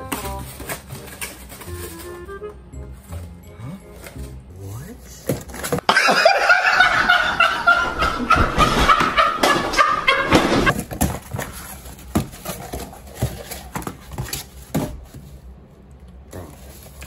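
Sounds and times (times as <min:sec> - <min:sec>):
young men shrieking laughter: 0:05.9 - 0:10.4.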